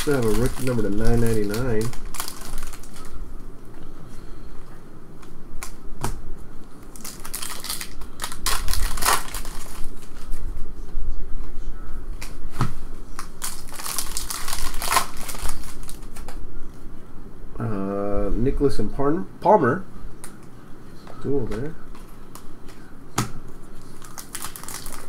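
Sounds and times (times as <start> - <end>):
trading cards rustling: 0.0 - 3.2, 13.2 - 16.4, 23.7 - 25.0.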